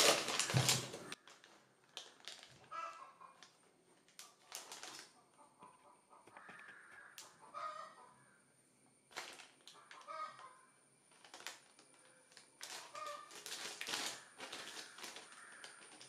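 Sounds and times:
plastic wrapping crinkling: 0:00.0 - 0:05.2, 0:09.1 - 0:10.0, 0:11.1 - 0:16.0.

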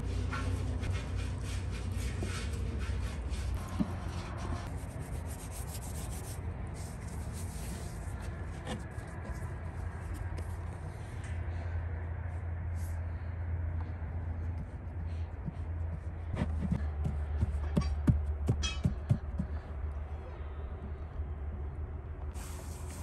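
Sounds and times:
pastry brush rubbing on griddle: 0:00.0 - 0:09.4.

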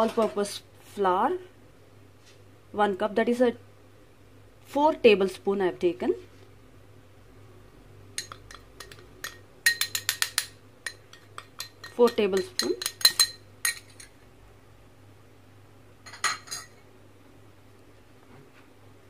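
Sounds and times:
utensils clinking on glass plate: 0:08.2 - 0:14.2, 0:16.1 - 0:16.8.

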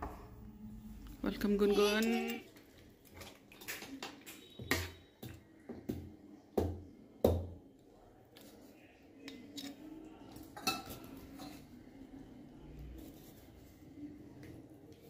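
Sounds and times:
dishes and cutlery clattering: 0:03.2 - 0:05.1, 0:10.4 - 0:11.6.

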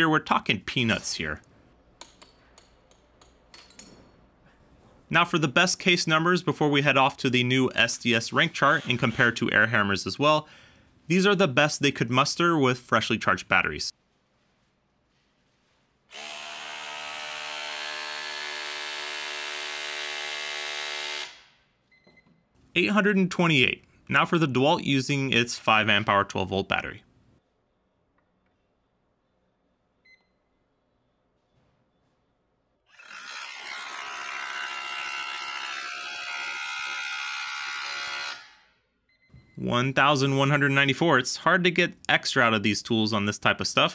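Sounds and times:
rotary hammer hammering on steel: 0:02.0 - 0:04.2.

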